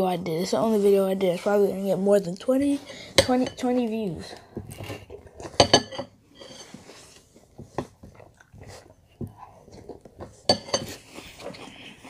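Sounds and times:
chewing cereal: 0:07.2 - 0:12.0.

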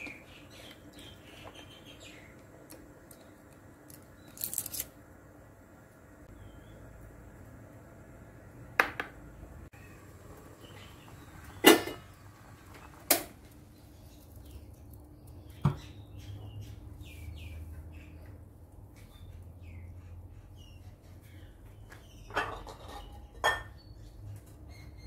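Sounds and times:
birds chirping: 0:00.0 - 0:04.4, 0:06.3 - 0:07.0, 0:09.7 - 0:13.0, 0:13.6 - 0:25.0
kitchenware knocking: 0:08.8 - 0:09.2.

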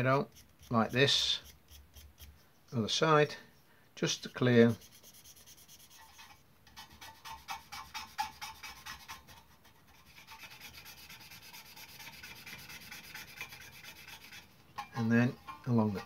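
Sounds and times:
brush scrubbing metal sheet: 0:04.2 - 0:16.0.

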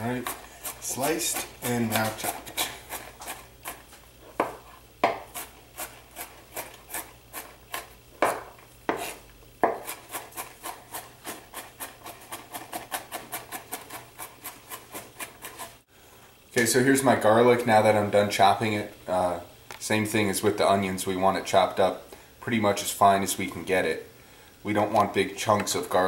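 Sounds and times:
knife chopping on wooden board: 0:04.4 - 0:15.6.

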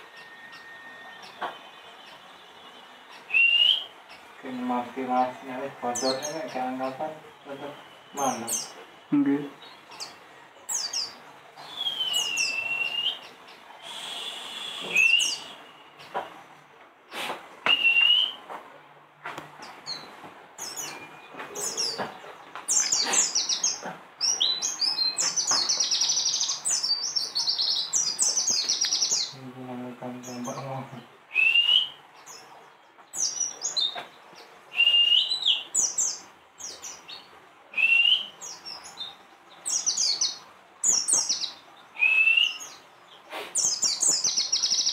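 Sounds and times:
birds chirping and twittering: 0:00.0 - 0:44.9
lower swooping bird call: 0:11.6 - 0:16.0, 0:34.7 - 0:35.7.

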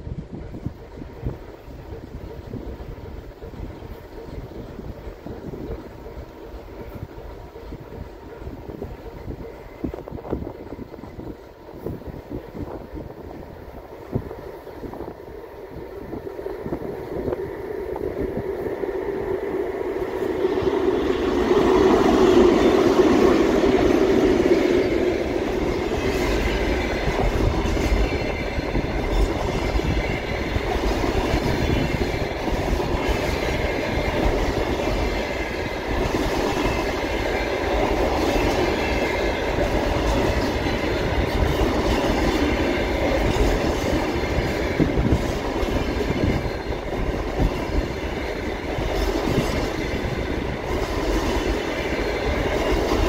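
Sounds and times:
diesel locomotive passing: 0:00.0 - 0:53.0
train wheel noise: 0:00.0 - 0:53.0
clickety-clack over rail joints: 0:19.7 - 0:53.0.

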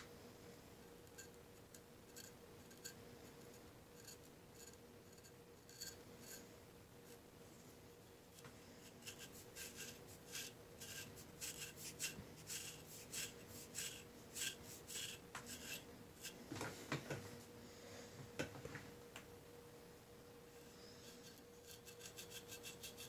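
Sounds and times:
knife scraping skin: 0:09.0 - 0:16.4, 0:21.6 - 0:23.0
soft knocks and handling: 0:16.4 - 0:17.4.

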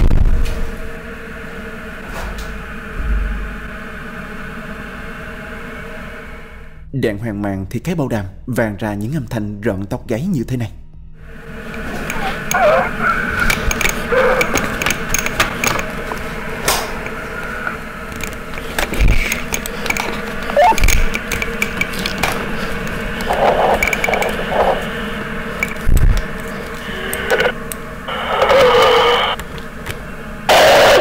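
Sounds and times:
steady tone: 0:11.2 - 0:31.0
walkie-talkie static: 0:11.6 - 0:31.0.

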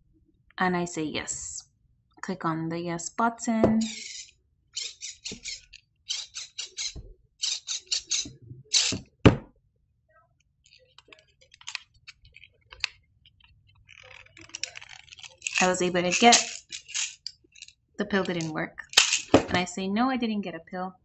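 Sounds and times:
pills rattling in plastic bottle: 0:10.7 - 0:19.5.

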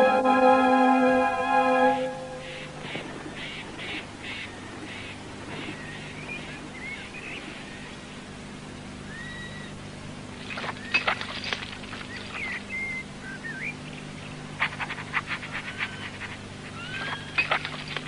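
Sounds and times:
low steady hum: 0:00.0 - 0:18.0
birds chirping and whistling: 0:09.1 - 0:09.8, 0:12.1 - 0:13.9, 0:15.5 - 0:18.0.

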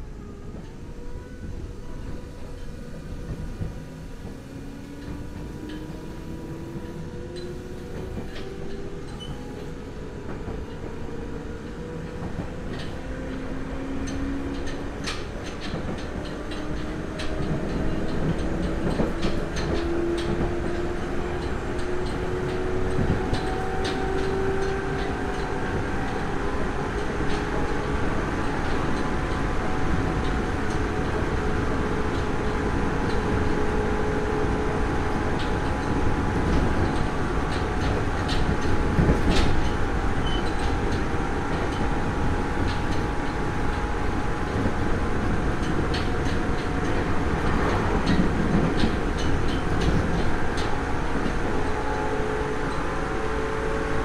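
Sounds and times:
wheel and track rumble: 0:00.0 - 0:54.0
wheel clicks over rail joints: 0:35.1 - 0:52.0.

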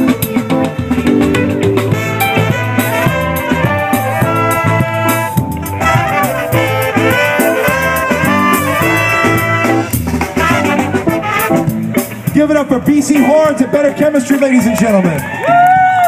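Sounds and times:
horn section melody: 0:00.0 - 0:12.5
live ska band playing: 0:00.0 - 0:16.0
steady bass line: 0:00.0 - 0:16.0.

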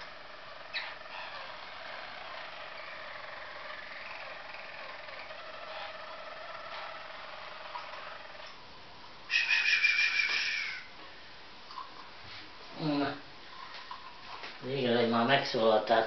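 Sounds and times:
canary trilling song: 0:00.0 - 0:08.6, 0:09.2 - 0:11.0.

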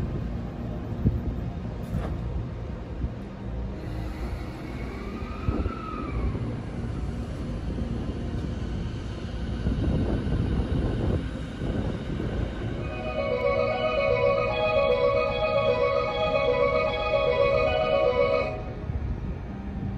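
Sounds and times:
electric train rumbling: 0:00.0 - 0:19.9
train motor whine: 0:03.7 - 0:19.9.

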